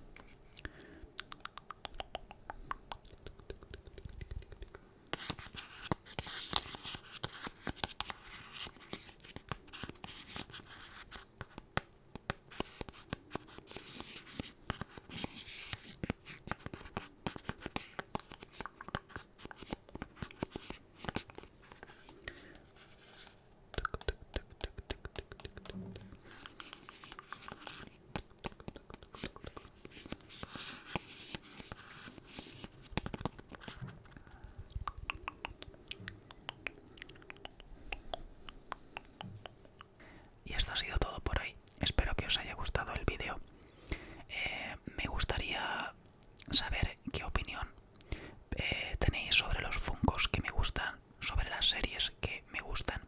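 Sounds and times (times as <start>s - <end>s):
fingertips tapping and scratching vinyl: 11.2s - 22.2s, 23.7s - 33.9s.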